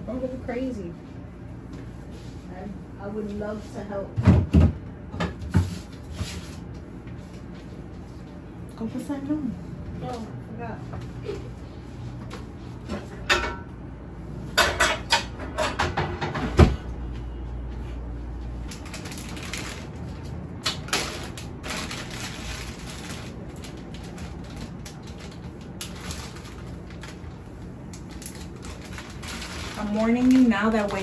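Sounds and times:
plastic bags rustling: 18.6 - 31.0.

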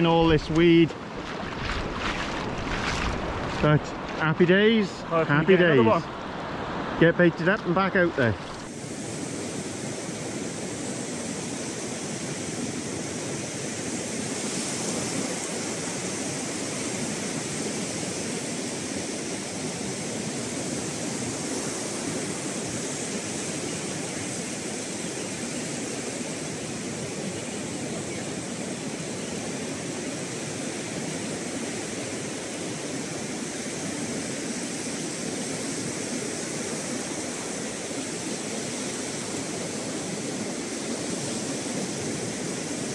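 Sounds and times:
surf breaking on sandy beach: 0.0 - 17.5.

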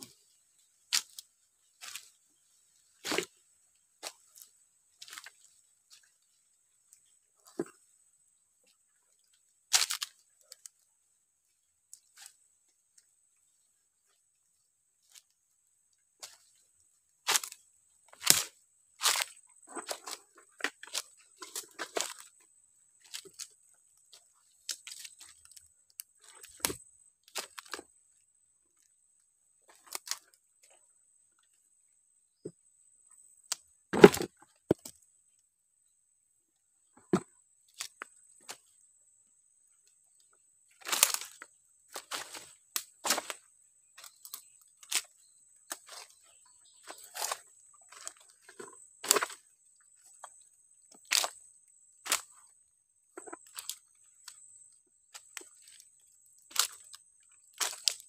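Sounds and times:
dry leaves and twigs crackling: 0.0 - 7.8, 8.7 - 10.8, 11.6 - 14.2, 15.0 - 27.9, 28.7 - 30.8, 37.7 - 38.9, 39.9 - 52.5, 53.1 - 58.0.

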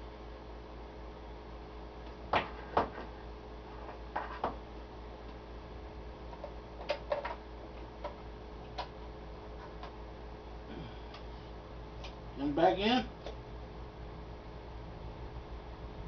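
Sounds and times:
low electrical hum: 0.0 - 16.0
radio switches and knobs clicking: 6.4 - 9.0.

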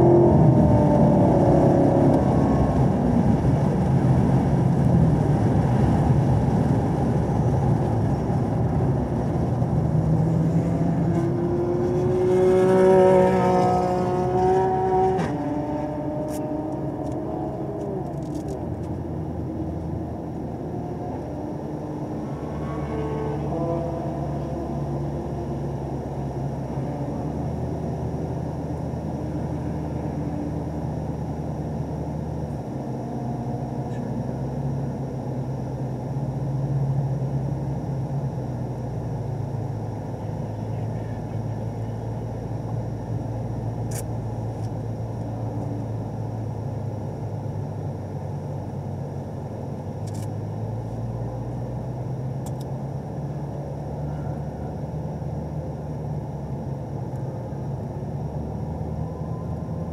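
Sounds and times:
car engine idling: 12.9 - 59.9.

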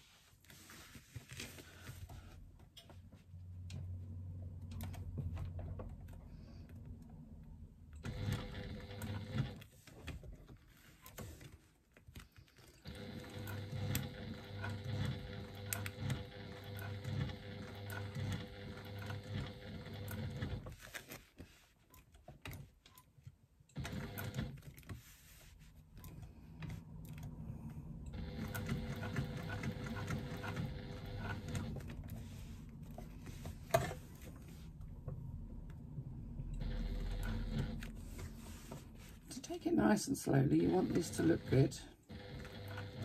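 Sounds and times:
electric sewing machine stitching: 8.0 - 9.7, 12.8 - 20.8, 23.7 - 24.6, 28.1 - 32.3, 36.5 - 38.1, 40.5 - 43.0.

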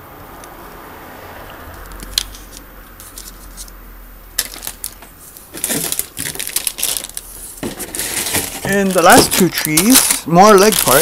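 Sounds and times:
plastic clattering and rustling: 4.4 - 11.0.

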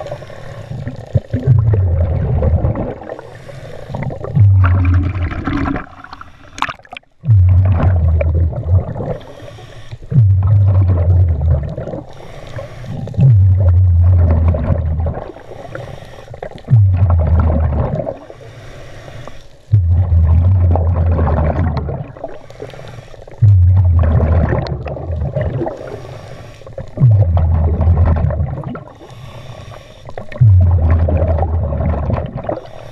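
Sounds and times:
scuba regulator breathing: 0.0 - 1.4, 2.9 - 6.7, 8.9 - 10.4, 11.8 - 13.6, 15.2 - 16.7, 18.1 - 20.1, 22.1 - 23.5, 25.6 - 27.2, 28.8 - 30.4, 32.5 - 32.9
exhaled bubbles rumbling: 0.0 - 9.4, 10.0 - 12.3, 12.9 - 18.4, 19.7 - 22.5, 23.2 - 29.3, 30.1 - 32.9
water splashing: 0.0 - 18.4.

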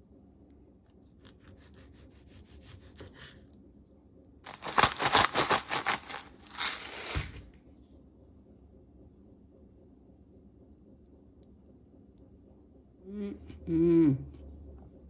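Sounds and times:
knife sawing through tomato: 1.2 - 3.4, 4.5 - 7.4
seasoning grinder grinding: 4.5 - 7.4.

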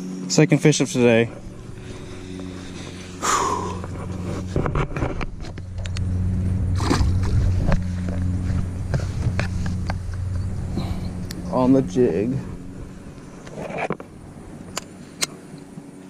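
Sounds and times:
steady low hum: 0.0 - 16.0
handling clicks and rustles: 3.8 - 6.1
fish splashing into water: 6.7 - 7.6.

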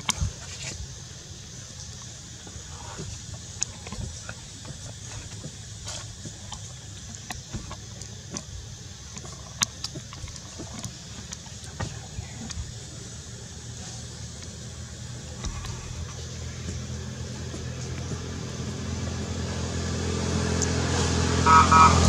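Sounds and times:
small clicks and ticks: 1.7 - 12.8.

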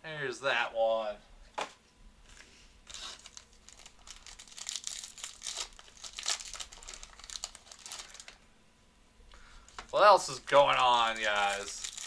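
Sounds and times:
foil wrappers crinkling and tearing: 2.8 - 8.4, 9.6 - 12.0.

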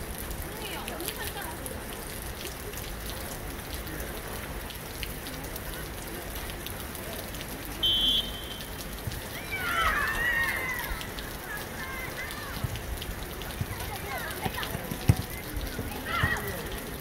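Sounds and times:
steady outdoor hiss: 0.0 - 17.0
referee's whistle blast: 7.8 - 8.6.

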